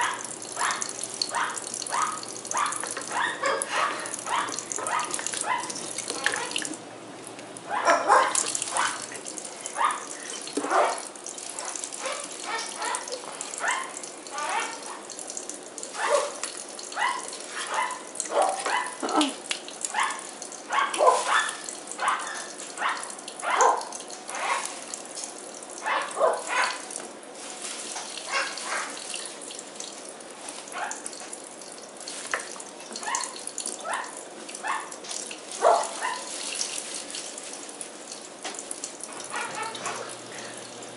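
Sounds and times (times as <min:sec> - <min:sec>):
faucet running into sink: 0:00.0 - 0:07.5, 0:08.3 - 0:21.9, 0:34.5 - 0:40.9.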